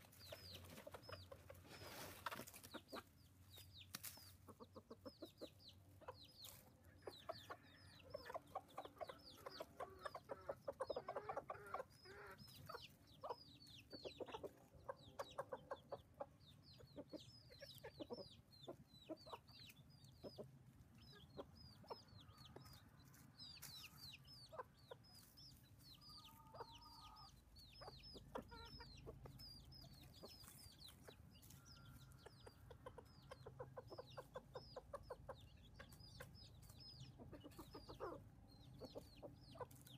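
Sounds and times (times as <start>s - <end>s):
chickens clucking: 0.0s - 39.9s
chicks peeping: 0.0s - 39.9s.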